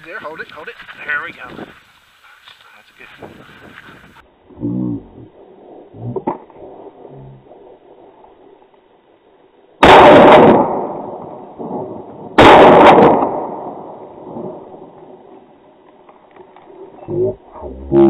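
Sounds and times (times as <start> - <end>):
shotgun shots: 9.8 - 11.0, 12.4 - 13.7.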